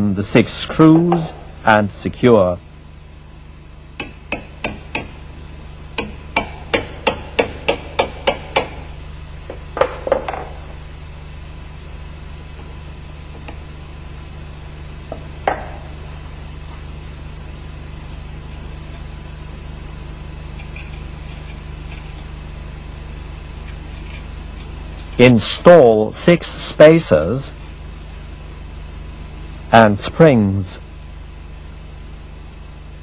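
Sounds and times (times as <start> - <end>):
hammer tapping metal: 4.0 - 5.2, 6.0 - 8.9, 15.1 - 15.9.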